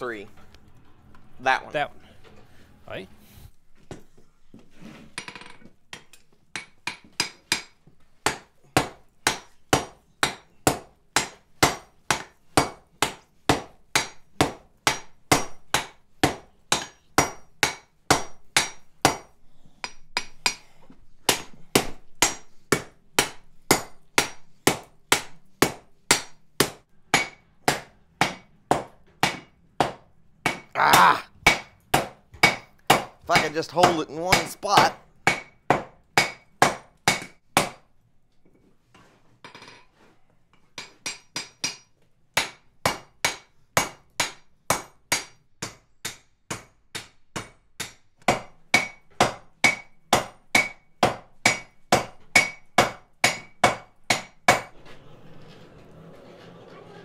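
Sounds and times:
sledgehammer striking iron on anvil: 6.6s - 20.6s, 21.3s - 30.7s, 31.5s - 37.8s, 40.8s - 54.7s.

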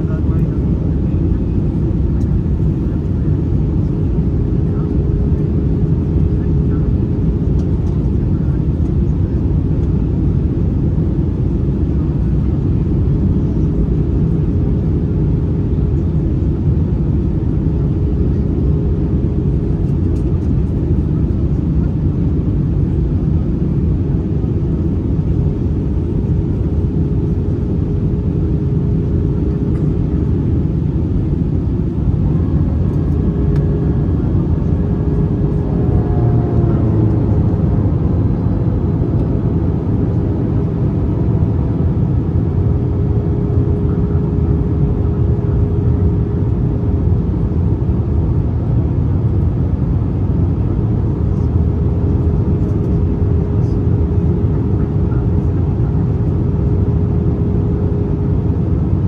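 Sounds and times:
airliner cabin rumble: 0.0s - 59.0s
steady low hum: 0.0s - 59.0s.

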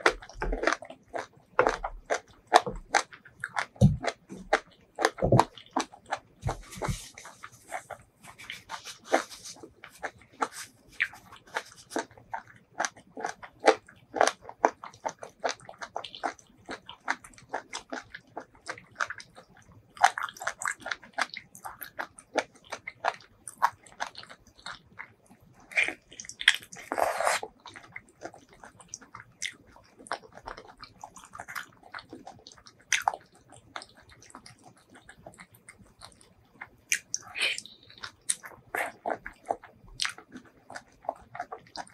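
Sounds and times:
person chewing food: 0.0s - 41.9s
wet mouth clicks and smacks: 36.9s - 39.3s.

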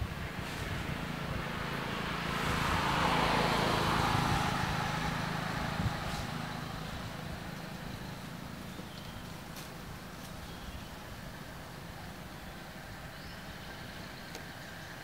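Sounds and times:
motor vehicle passing: 0.0s - 11.6s.

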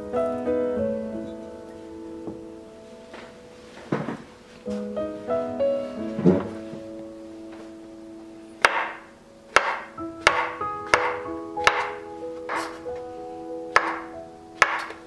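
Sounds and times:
soft background music: 0.0s - 15.0s
knife chopping on cutting board: 9.6s - 12.8s, 13.8s - 15.0s.

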